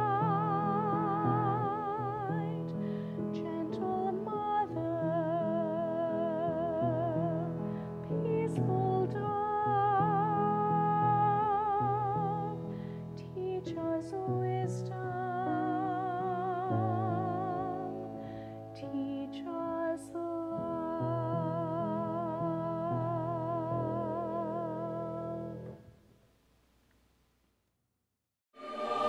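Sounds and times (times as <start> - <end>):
piano accompaniment: 0.0 - 25.7
soprano singing: 0.0 - 25.8, 28.6 - 29.0.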